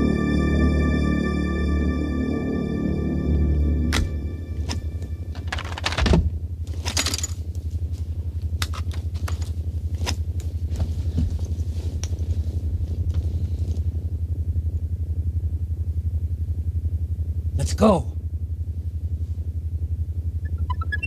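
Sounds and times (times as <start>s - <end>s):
pulsing electrical hum: 0.0s - 21.0s.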